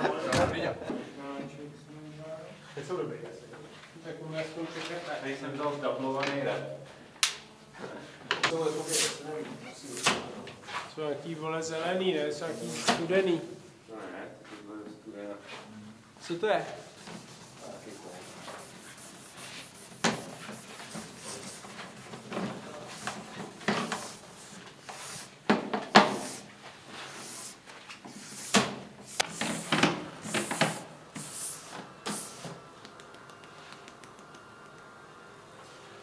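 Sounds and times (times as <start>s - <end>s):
wax scraping and rubbing on skis: 16.8s - 22.0s.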